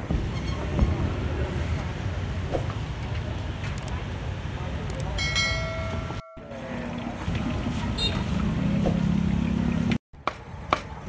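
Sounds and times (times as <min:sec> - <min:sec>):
traffic rumble: 0:00.0 - 0:11.0
steady pitched tone: 0:05.2 - 0:07.4.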